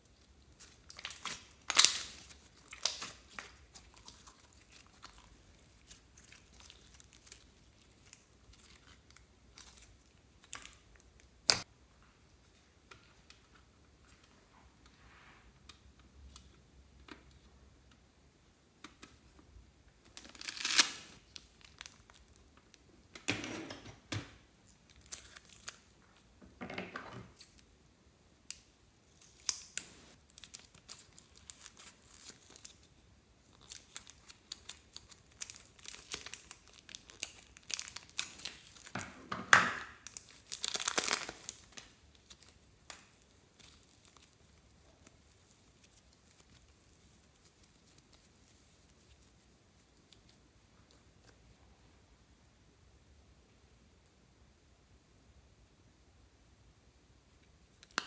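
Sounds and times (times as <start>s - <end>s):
plastic bag crinkling: 39.9s - 49.3s.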